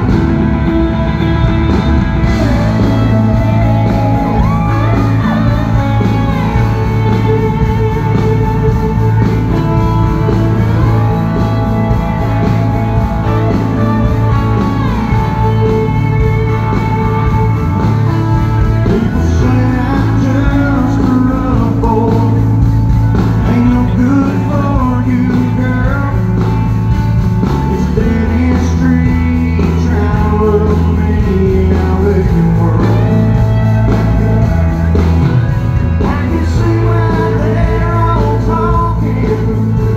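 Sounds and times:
country band playing: 0:00.0 - 0:39.9
person singing lead vocal: 0:18.7 - 0:26.7, 0:27.4 - 0:34.4, 0:35.9 - 0:39.9.

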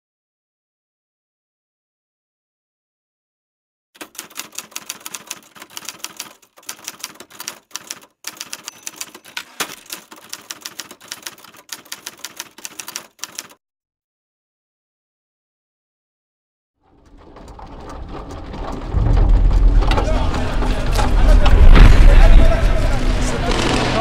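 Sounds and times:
rapid typing keystrokes: 0:04.0 - 0:13.6.

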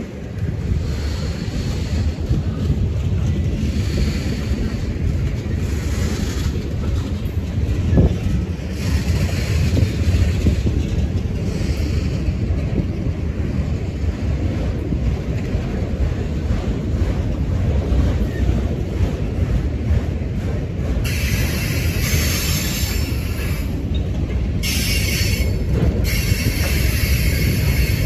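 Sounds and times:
train cars rumbling past: 0:00.0 - 0:28.0
wind buffeting microphone: 0:00.0 - 0:28.0.

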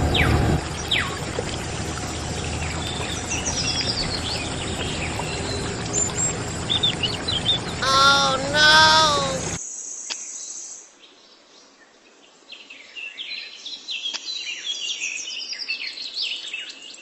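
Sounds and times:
water splashing into pool: 0:00.0 - 0:09.6
bird chirps: 0:00.2 - 0:07.8
voice exclamation: 0:07.8 - 0:09.6.

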